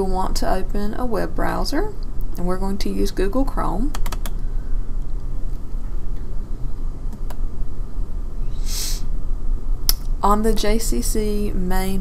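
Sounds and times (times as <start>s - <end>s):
low rumble background noise: 0.0s - 12.0s
short breath-like hiss: 8.5s - 9.1s.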